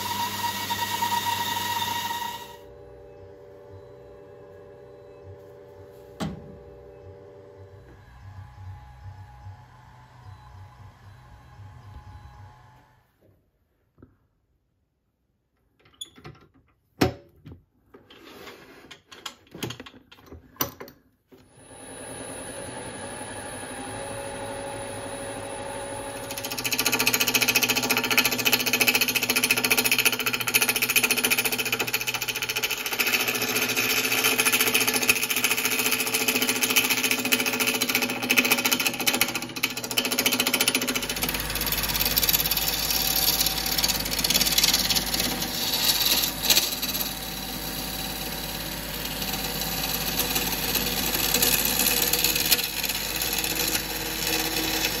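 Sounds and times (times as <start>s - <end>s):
gouge cutting spinning wood: 0.0s - 2.7s, 22.1s - 55.0s
lathe humming: 0.0s - 13.0s, 21.5s - 55.0s.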